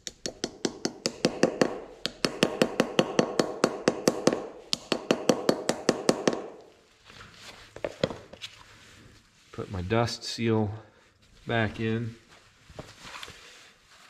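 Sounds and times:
hammer tapping metal: 0.0 - 6.6.

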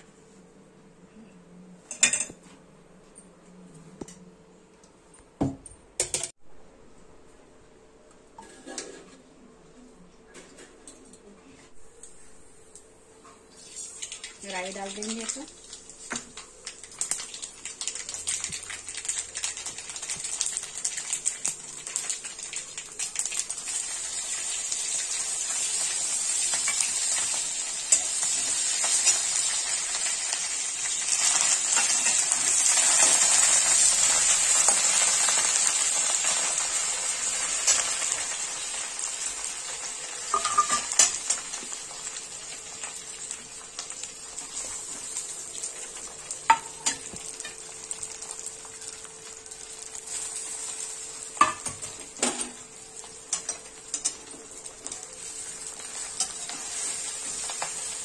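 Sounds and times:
seeds popping in hot oil: 40.3 - 41.4.

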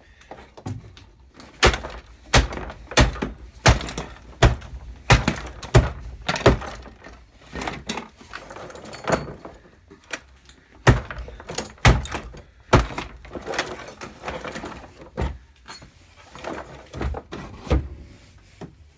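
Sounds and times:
plastic and metal pieces rattling: 1.3 - 17.2
wooden beam thudding: 1.5 - 7.2, 10.8 - 13.6.

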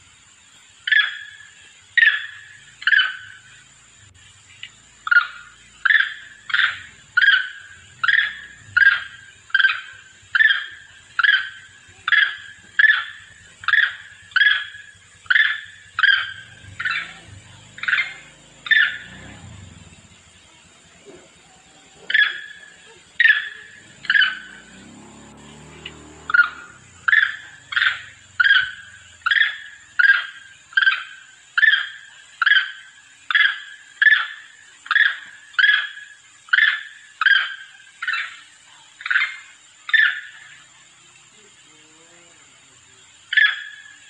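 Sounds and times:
macaque short sharp calls: 21.0 - 24.9.

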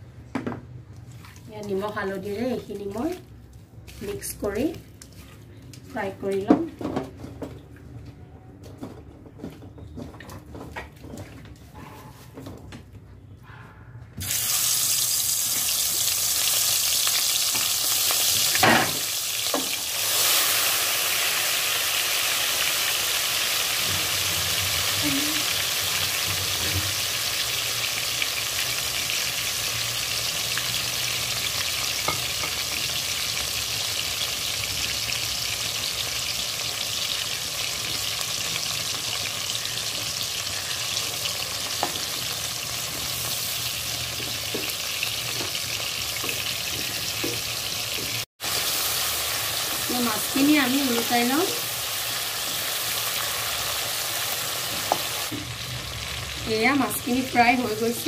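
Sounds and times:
prawns sizzling in hot oil: 14.2 - 58.0.

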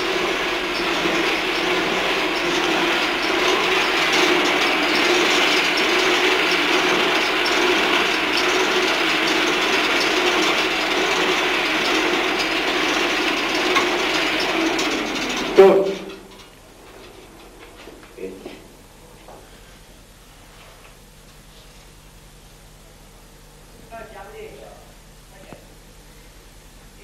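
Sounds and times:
hand-cranked wooden wheel turning: 0.0 - 18.2.

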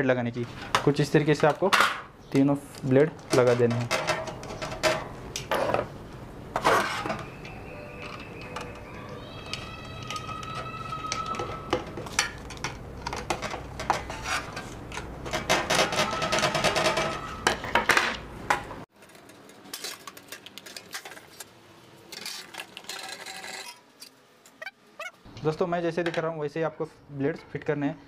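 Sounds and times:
screwdriver clinking and scraping metal: 11.2 - 17.2.

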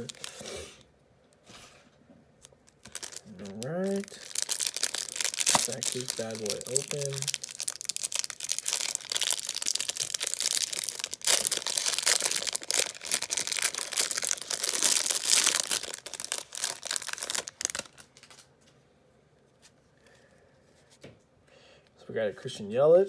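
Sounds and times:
plastic wrap crinkling and tearing: 0.0 - 0.5, 2.4 - 18.5.

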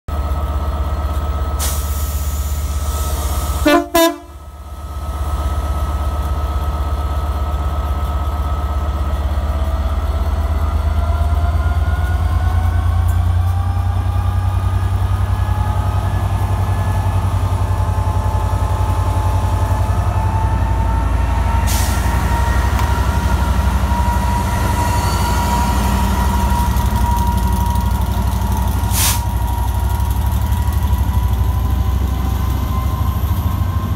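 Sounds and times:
diesel locomotive engine: 0.1 - 33.9
locomotive horn blast: 3.6 - 4.4.

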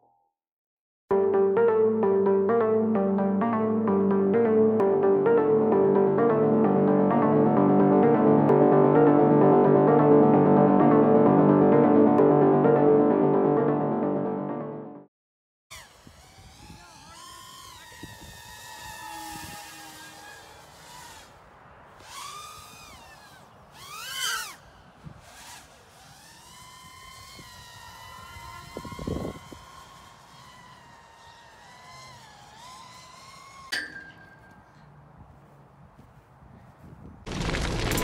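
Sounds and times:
quadcopter motors whining: 15.7 - 34.8.

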